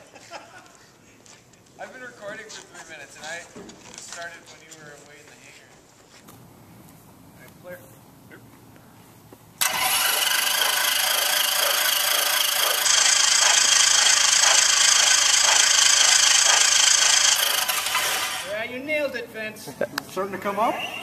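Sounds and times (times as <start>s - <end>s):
aircraft engine starter cranking: 9.6s - 18.5s.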